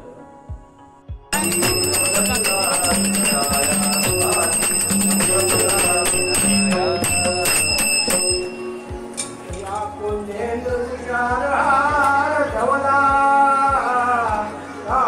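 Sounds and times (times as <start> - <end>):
music with steady beat: 0.0 - 15.0
ringing bell-like tones: 1.4 - 9.7.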